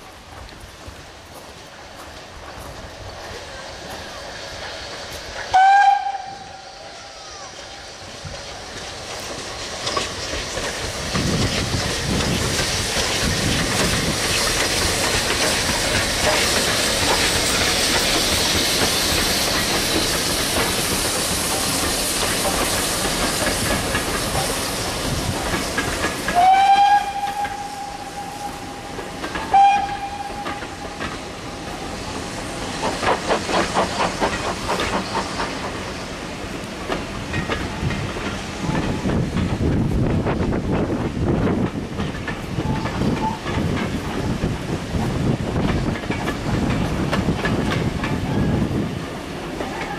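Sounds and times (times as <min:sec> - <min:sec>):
steam trains passing: 0:00.0 - 0:49.9
steam whistle blasts: 0:05.5 - 0:07.8, 0:26.3 - 0:31.0
wheels clicking over rail joints: 0:08.3 - 0:49.9.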